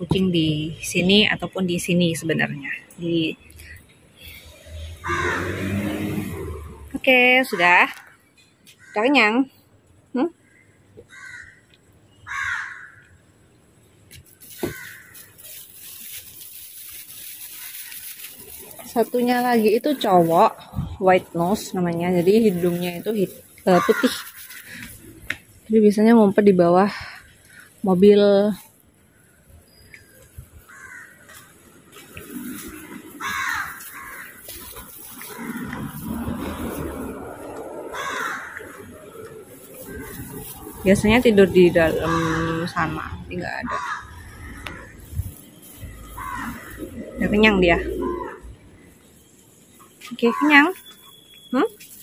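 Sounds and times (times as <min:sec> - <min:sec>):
bird cawing: 0:04.8 - 0:05.8, 0:07.5 - 0:09.1, 0:10.4 - 0:13.2, 0:14.4 - 0:18.8, 0:22.5 - 0:25.2, 0:30.0 - 0:36.8, 0:37.4 - 0:40.8, 0:41.9 - 0:42.8, 0:43.7 - 0:45.2, 0:45.9 - 0:47.2.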